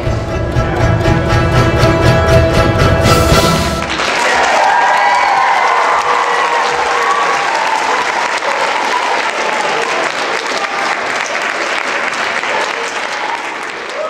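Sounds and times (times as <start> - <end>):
audience applauding: 3.4 - 14.0.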